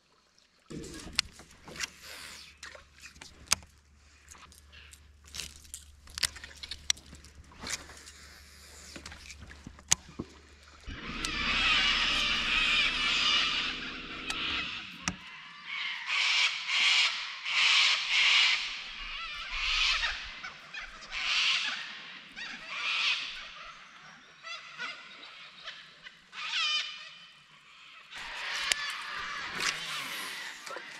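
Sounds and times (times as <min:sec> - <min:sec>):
electric trolling motor humming: 0:07.4 - 0:15.3.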